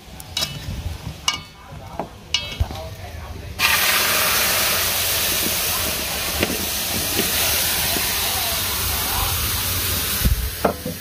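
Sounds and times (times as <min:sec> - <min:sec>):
food hissing in a pan: 0:03.6 - 0:11.0.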